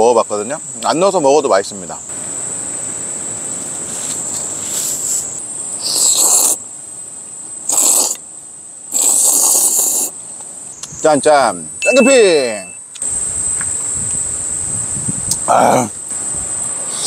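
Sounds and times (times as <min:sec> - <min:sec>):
insect droning: 0:00.0 - 0:17.0
person slurping noodles: 0:05.8 - 0:06.6, 0:07.7 - 0:08.2, 0:08.9 - 0:10.1.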